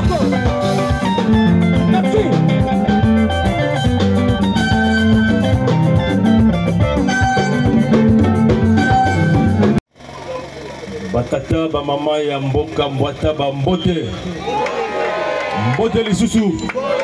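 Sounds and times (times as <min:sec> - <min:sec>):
drum kit: 0:00.0 - 0:09.8
electric guitar: 0:00.0 - 0:09.8
bass: 0:00.0 - 0:17.0.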